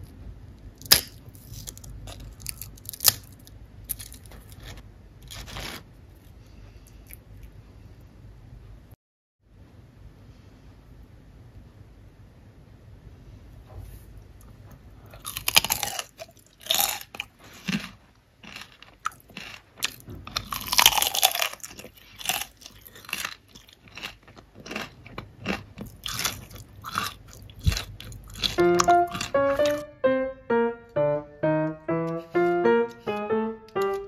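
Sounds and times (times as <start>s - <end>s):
potato chips crunching: 0.8s - 5.9s, 15.2s - 29.8s
piano music: 28.4s - 34.0s.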